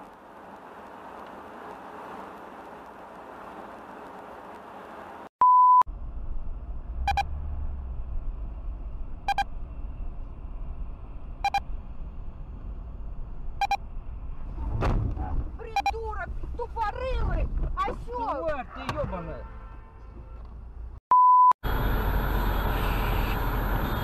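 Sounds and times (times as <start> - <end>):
car driving on highway: 0.0 - 5.3
in-cabin road rumble: 0.0 - 5.3, 5.9 - 19.0, 21.6 - 24.0
loud single-pitch beep: 5.4 - 5.8, 7.1 - 7.3, 9.3 - 9.5, 11.4 - 11.6, 13.6 - 13.8, 21.1 - 21.6
short electronic beep: 7.1 - 7.3, 9.3 - 9.5, 21.1 - 21.6.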